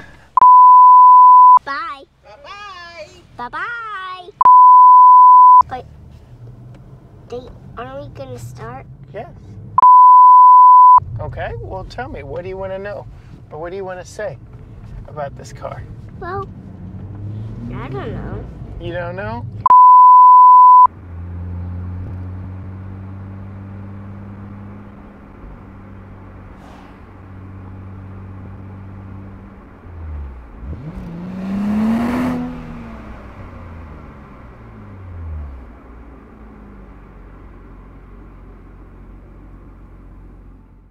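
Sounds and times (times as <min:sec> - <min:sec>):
car engine passing by: 0:13.0 - 0:19.7, 0:20.5 - 0:40.6.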